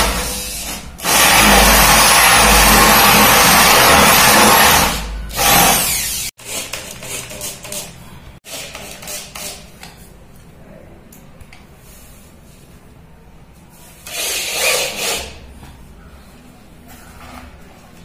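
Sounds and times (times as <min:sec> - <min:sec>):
electric drill boring into wood: 0:00.1 - 0:06.3.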